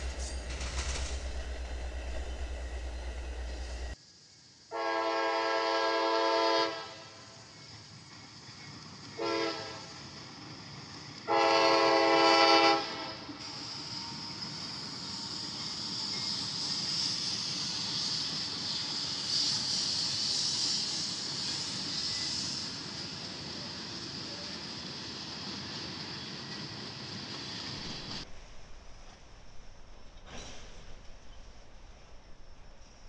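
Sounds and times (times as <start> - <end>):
approaching train rumble: 0.0 - 33.0
locomotive air horn blasts: 4.7 - 7.2, 9.2 - 9.8, 11.3 - 13.2.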